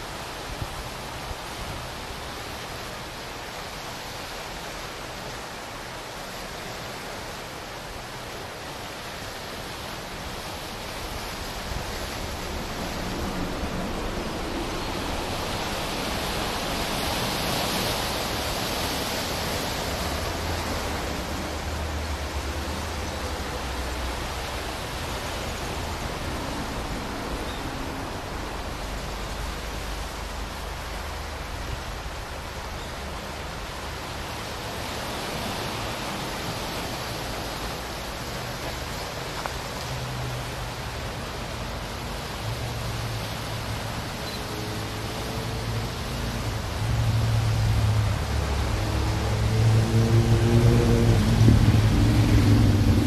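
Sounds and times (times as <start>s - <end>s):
surf washing against rocks: 0.0s - 53.0s
wind buffeting microphone: 46.6s - 53.0s.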